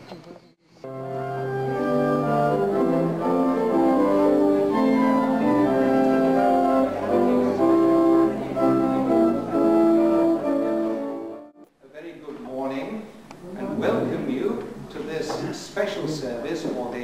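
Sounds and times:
church pipe organ chords: 0:00.8 - 0:11.6.

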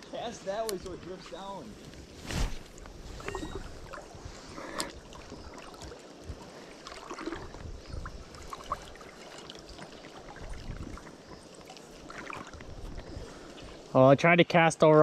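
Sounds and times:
stream flowing and gurgling: 0:00.0 - 0:15.0
light clicks: 0:00.6 - 0:01.0
wind rumble on microphone: 0:07.2 - 0:08.9, 0:10.3 - 0:11.4, 0:12.4 - 0:13.5.

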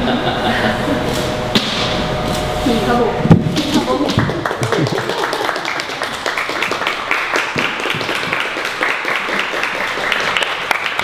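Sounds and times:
people clapping and tapping hands: 0:04.0 - 0:11.0.

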